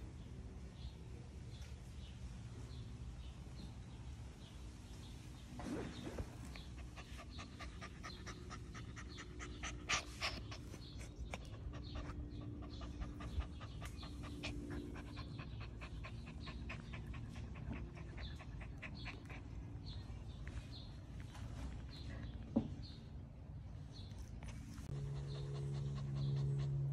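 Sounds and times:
puppy panting rapidly: 6.4 - 22.4, 24.5 - 26.9.

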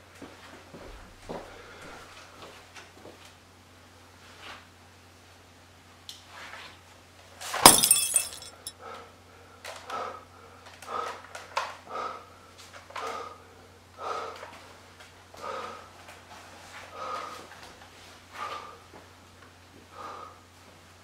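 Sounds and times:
glass breaking: 7.6 - 8.7.

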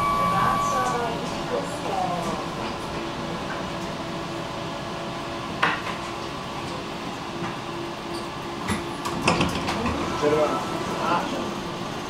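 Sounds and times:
tram electrical hum: 0.0 - 12.0.

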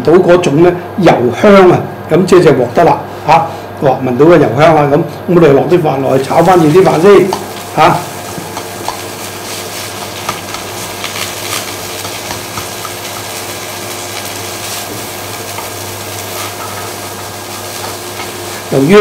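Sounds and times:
steady low hum: 0.0 - 19.0
rice sizzling in a pan: 6.1 - 19.0
chopsticks scraping and tapping pan: 7.2 - 7.6, 8.4 - 13.5, 14.2 - 18.5.

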